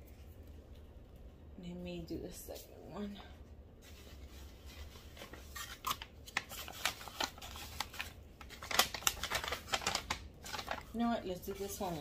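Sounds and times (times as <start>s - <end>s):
paper wrapping rustling and crinkling: 3.8s - 12.0s.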